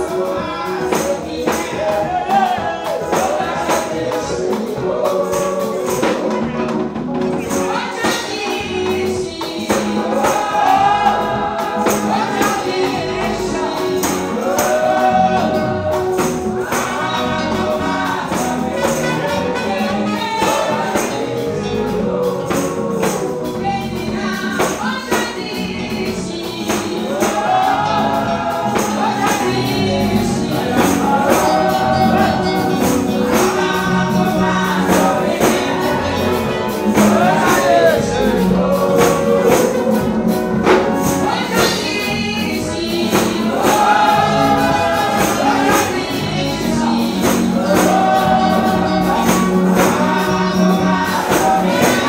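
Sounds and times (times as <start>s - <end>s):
backing music: 0.0s - 52.0s
steady percussion beat: 0.0s - 52.0s
woman singing gospel song: 0.0s - 52.0s.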